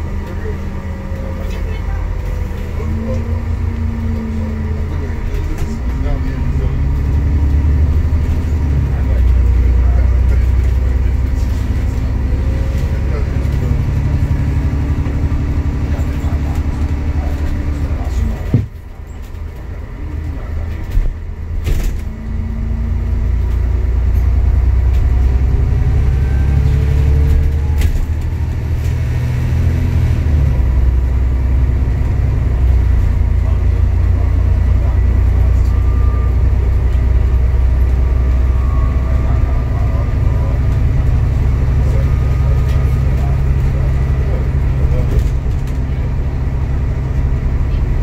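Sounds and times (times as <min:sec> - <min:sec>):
bus engine and road rumble: 0:00.0 - 0:48.0.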